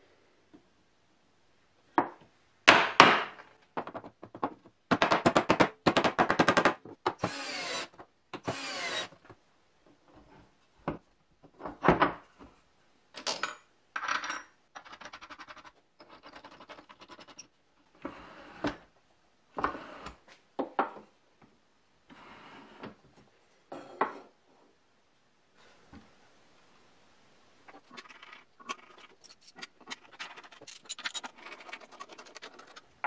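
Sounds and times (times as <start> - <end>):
knocks and clinks of parts: 29.2 - 31.8.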